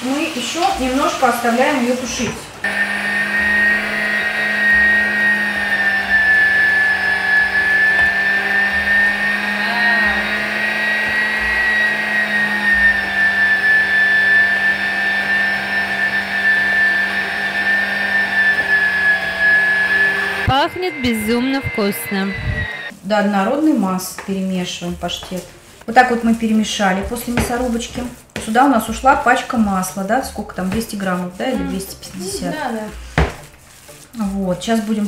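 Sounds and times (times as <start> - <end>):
electric meat grinder whining: 2.6 - 22.9.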